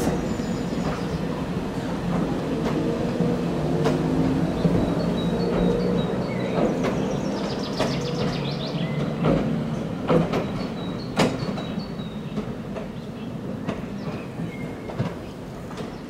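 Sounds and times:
electric railcar running on track: 0:00.0 - 0:16.0
wheels clacking over rail joints: 0:00.0 - 0:16.0.

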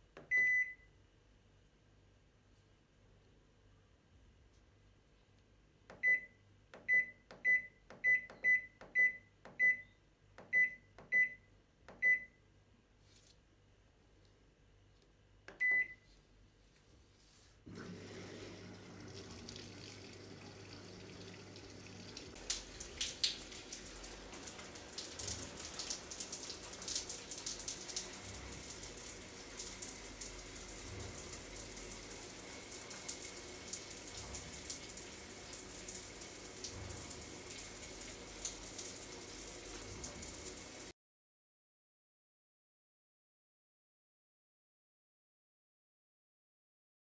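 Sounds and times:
shower water spraying on tiles: 0:17.7 - 0:40.9.

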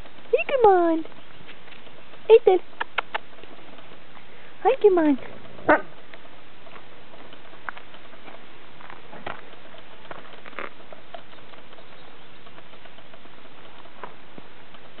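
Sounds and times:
puppy paws on dirt: 0:00.0 - 0:15.0.

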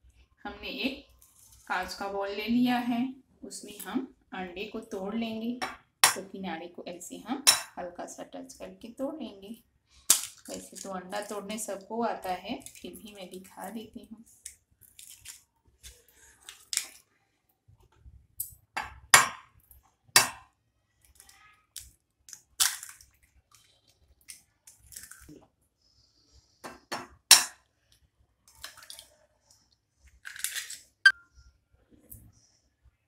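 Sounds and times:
eggshells pulled apart: 0:21.1 - 0:23.1, 0:30.2 - 0:30.9.

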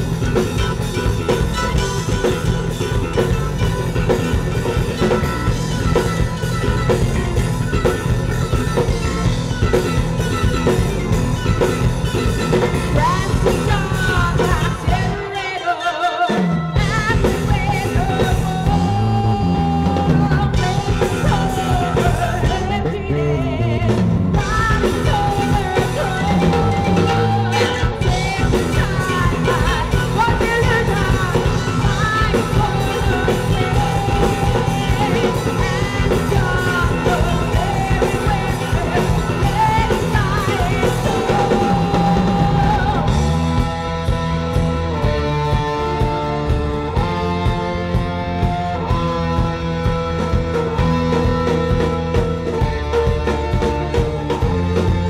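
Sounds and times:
drums: 0:00.0 - 0:55.0
electric guitar: 0:00.0 - 0:55.0
woman singing: 0:11.5 - 0:43.7.

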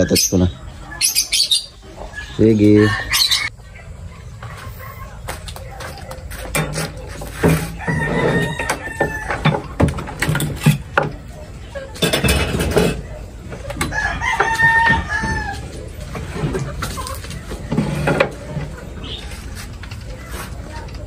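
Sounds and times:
tools clattering on wooden workbench: 0:06.3 - 0:11.2, 0:12.0 - 0:13.0
rooster crowing: 0:07.7 - 0:09.6, 0:13.8 - 0:15.8.

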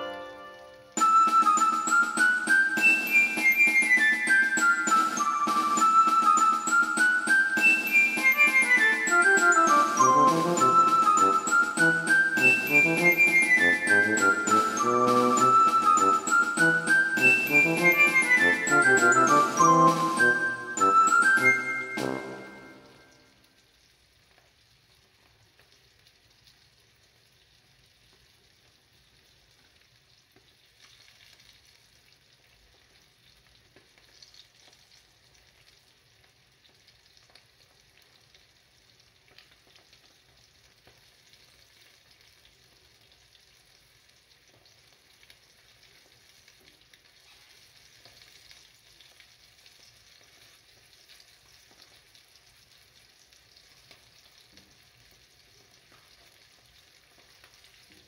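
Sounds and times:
fish sizzling in oil: 0:22.2 - 0:58.0.

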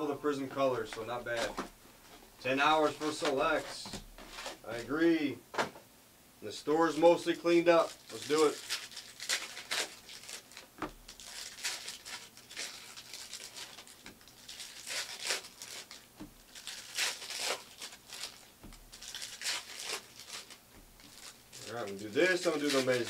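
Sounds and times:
foil wrappers crinkling: 0:00.6 - 0:01.6, 0:07.2 - 0:23.0.

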